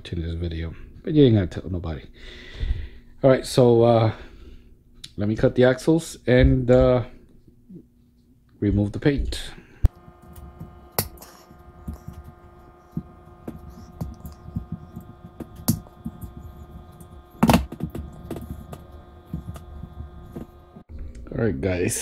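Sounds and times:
steady hum: 9.4s - 22.0s.

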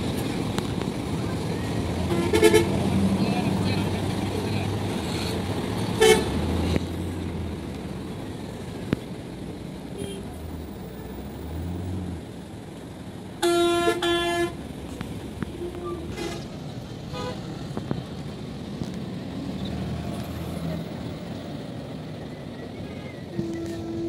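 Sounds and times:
diesel engines running: 0.0s - 24.0s
bus horns honking: 1.7s - 3.2s, 5.1s - 6.8s, 9.9s - 10.6s, 13.3s - 14.8s, 15.4s - 17.8s, 22.7s - 24.0s.

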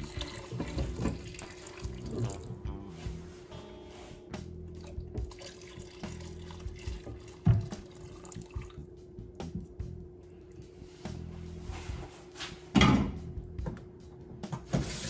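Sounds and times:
kitchen tap running: 0.0s - 2.6s, 4.8s - 8.9s
faint background music: 0.0s - 15.0s.

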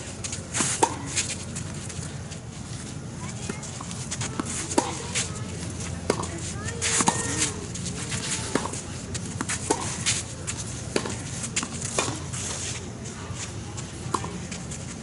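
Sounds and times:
racket striking tennis ball: 0.5s - 1.3s, 4.2s - 5.3s, 6.0s - 7.6s, 8.2s - 12.6s, 14.1s - 14.4s
tennis ball bouncing: 0.6s - 1.2s, 3.4s - 5.4s, 6.0s - 7.6s, 8.2s - 12.4s, 14.0s - 14.5s.

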